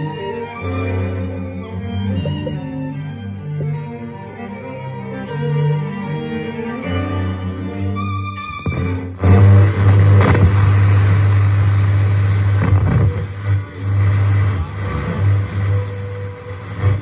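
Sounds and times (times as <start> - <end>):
heavy deep bass: 8.7 - 17.0
radio static between stations: 8.7 - 17.0.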